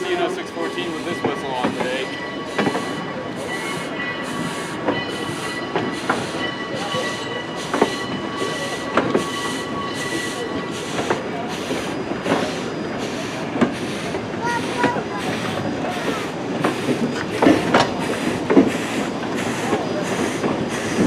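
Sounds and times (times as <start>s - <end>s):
faint steady squeal: 0.0s - 13.6s
train wheels clicking over rail joints: 0.0s - 21.0s.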